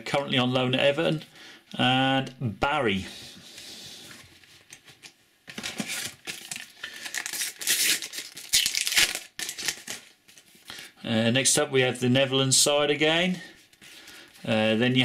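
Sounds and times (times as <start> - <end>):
paper packet being torn open: 5.5 - 10.5.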